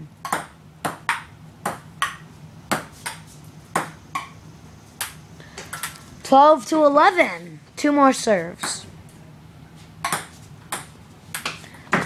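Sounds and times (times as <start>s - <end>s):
ping-pong ball hits: 0.2s - 4.4s, 5.0s - 6.0s, 10.0s - 12.0s.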